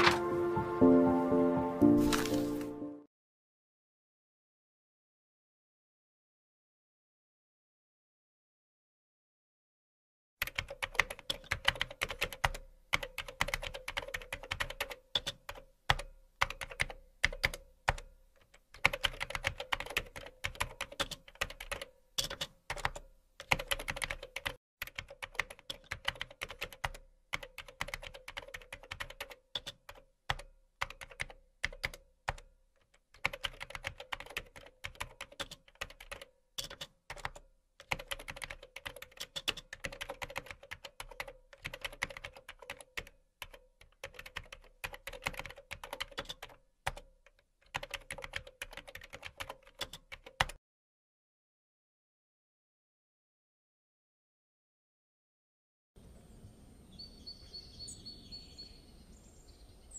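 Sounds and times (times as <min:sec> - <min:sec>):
keyboard typing: 0:10.4 - 0:50.6.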